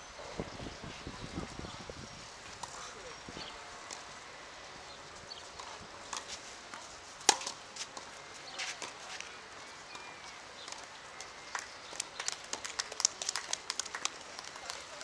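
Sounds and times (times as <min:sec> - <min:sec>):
footsteps on clay court: 0:05.5 - 0:10.9
racket striking tennis ball: 0:06.1 - 0:09.0.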